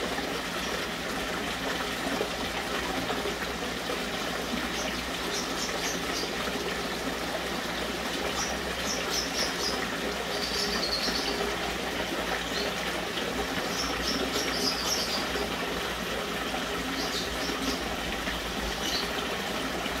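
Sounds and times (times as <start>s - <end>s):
water running: 0.0s - 20.0s.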